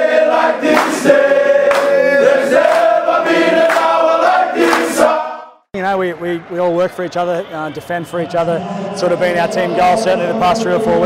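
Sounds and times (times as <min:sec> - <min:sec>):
male choir singing: 0:00.0 - 0:05.6, 0:08.4 - 0:11.0.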